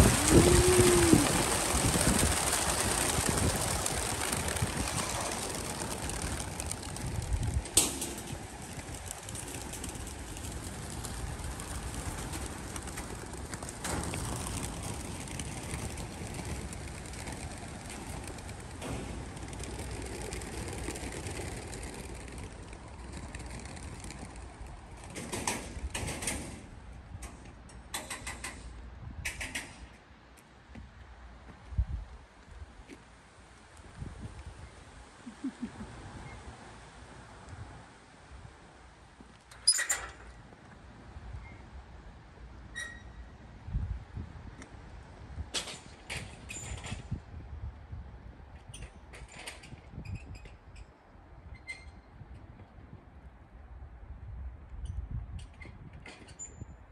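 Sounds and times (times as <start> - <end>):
flock of birds flying: 0.0 - 26.2
pigeon wings flapping: 0.0 - 26.5
low outdoor rumble: 0.0 - 27.9.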